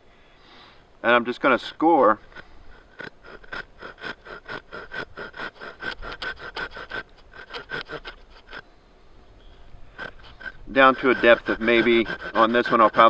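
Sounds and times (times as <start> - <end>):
hand saw cutting wood: 1.6 - 8.6, 9.9 - 13.0.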